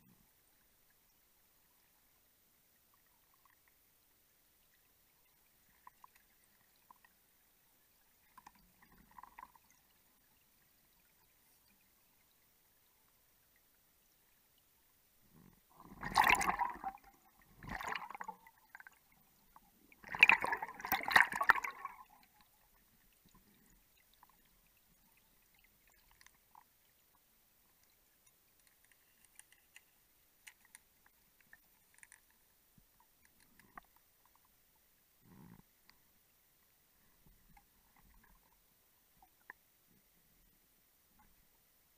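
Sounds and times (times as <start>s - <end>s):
faint ticks: 0.0s - 15.9s, 21.8s - 40.2s, 41.1s - 41.6s
underwater bubbles gurgling: 8.2s - 11.9s, 15.3s - 27.1s.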